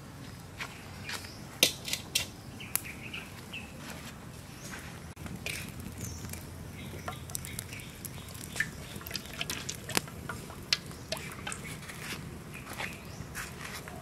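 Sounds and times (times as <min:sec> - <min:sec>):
sharp ticks and pops: 0:05.2 - 0:12.0
water trickling into a metal wok: 0:05.6 - 0:11.9.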